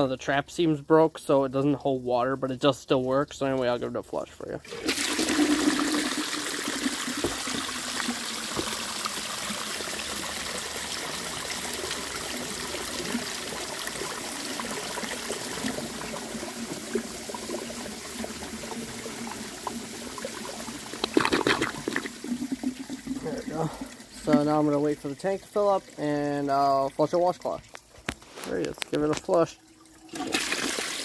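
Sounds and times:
toilet flushing water draining: 0:04.6 - 0:26.0, 0:29.8 - 0:31.0.

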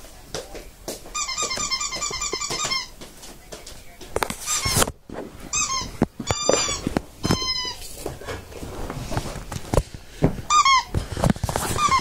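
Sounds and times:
squeaky toy squeaking: 0:01.1 - 0:02.9, 0:04.4 - 0:04.8, 0:05.5 - 0:07.8, 0:10.5 - 0:10.9, 0:11.7 - 0:12.0.

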